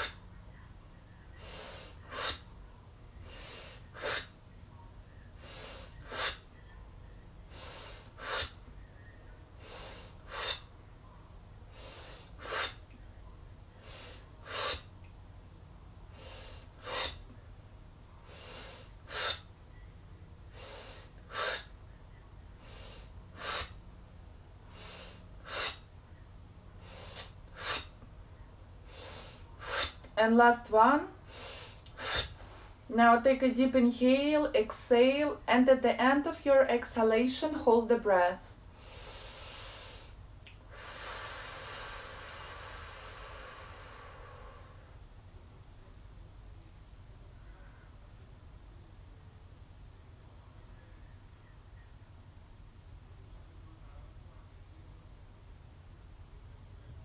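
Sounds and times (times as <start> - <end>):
soft inhales through nose: 1.4 - 2.5, 3.2 - 4.3, 5.4 - 6.5, 7.5 - 8.6, 9.6 - 10.7, 11.7 - 12.8, 16.1 - 17.3, 18.2 - 19.5, 20.5 - 21.7, 22.6 - 23.8, 24.7 - 25.8, 26.8 - 28.0, 28.8 - 30.0, 31.2 - 32.8, 38.8 - 45.0
woman exhaling forcefully: 40.7 - 44.9.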